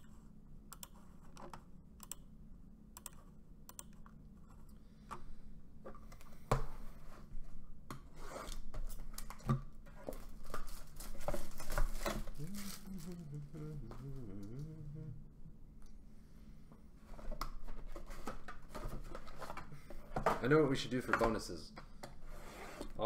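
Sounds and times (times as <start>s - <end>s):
shrink-wrapped boxes being moved: 10.0s - 13.6s.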